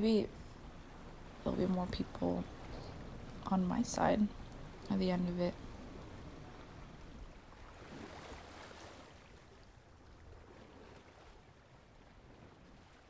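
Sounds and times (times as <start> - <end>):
ocean surf breaking: 0.5 - 9.7.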